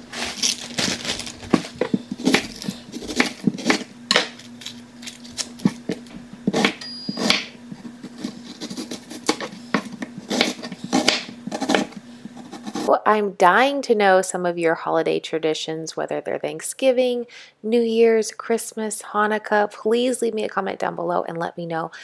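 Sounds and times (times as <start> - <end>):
low hum: 0.0 - 12.9.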